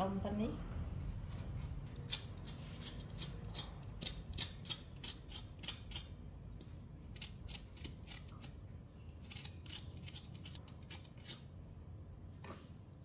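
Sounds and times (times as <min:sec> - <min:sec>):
knife cutting ginger: 0:01.2 - 0:11.5.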